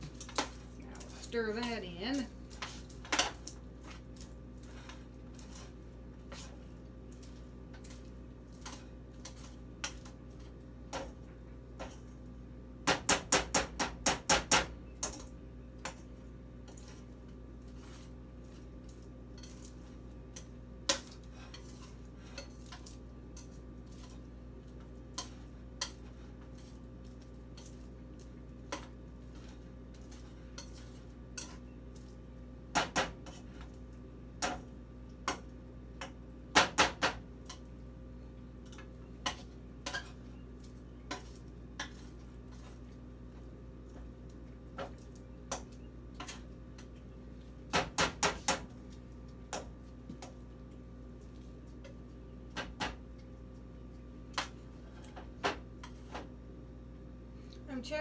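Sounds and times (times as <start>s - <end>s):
faint hum: 14.7s - 58.0s
spoon clicking and scraping in pan: 28.6s - 31.8s.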